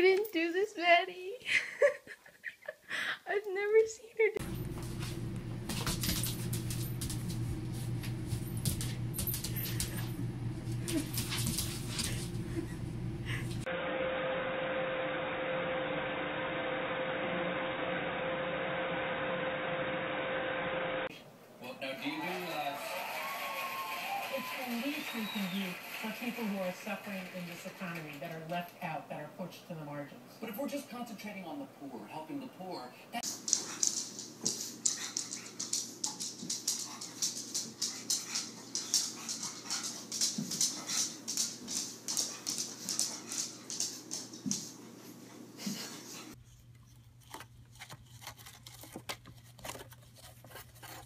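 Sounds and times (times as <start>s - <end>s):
hair dryer running: 22.2s - 28.0s.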